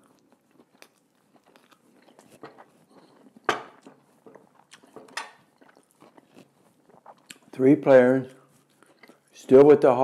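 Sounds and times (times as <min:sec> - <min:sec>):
man chewing food: 0:00.0 - 0:07.6, 0:08.3 - 0:09.6
bread crust crunching: 0:00.0 - 0:09.3
wet mouth clicks: 0:04.6 - 0:07.5.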